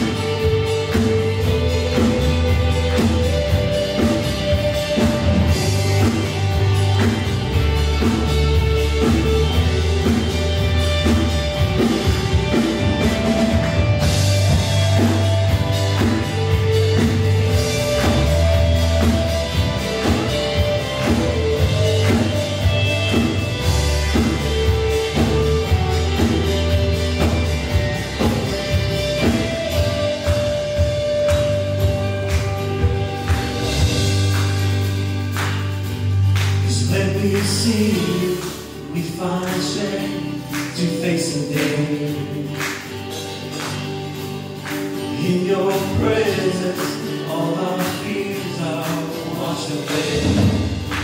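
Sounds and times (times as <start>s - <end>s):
deep bass notes: 0.0s - 40.5s
drum kit beat: 0.0s - 51.0s
worship band playing: 0.0s - 51.0s.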